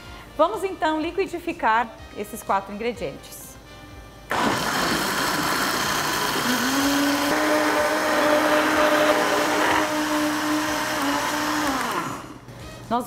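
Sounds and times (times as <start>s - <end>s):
electric blender running: 4.3s - 12.5s.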